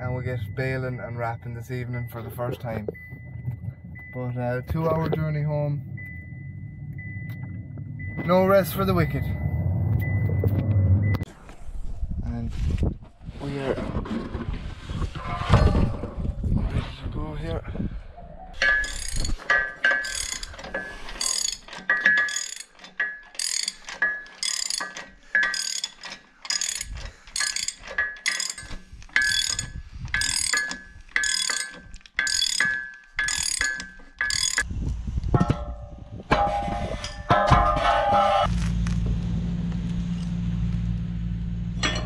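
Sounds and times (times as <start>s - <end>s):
ratchet wrench clicking: 18.6s - 34.7s.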